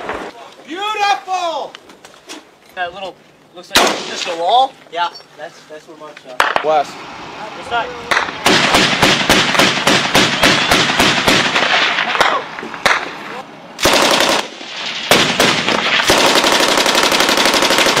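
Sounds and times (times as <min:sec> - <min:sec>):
machine-gun fire: 0:03.8 - 0:04.3, 0:08.1 - 0:13.2, 0:13.8 - 0:18.0.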